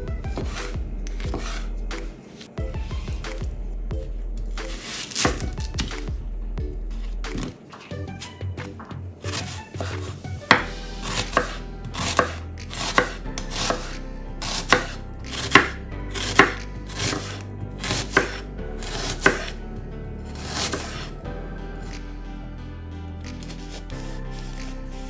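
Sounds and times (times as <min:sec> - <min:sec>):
knife slicing onion on board: 0:00.4 - 0:02.5, 0:04.6 - 0:06.1, 0:09.3 - 0:19.6, 0:20.3 - 0:21.1.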